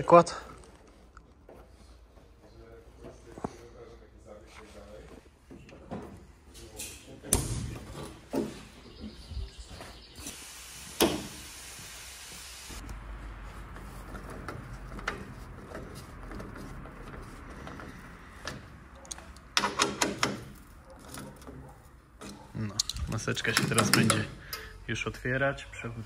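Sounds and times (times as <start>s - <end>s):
air hissing: 10.2s - 12.8s.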